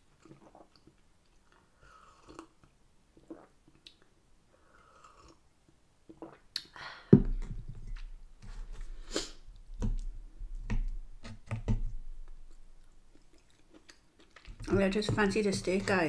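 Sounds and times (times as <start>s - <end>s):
chewing sounds: 12.8s - 14.6s.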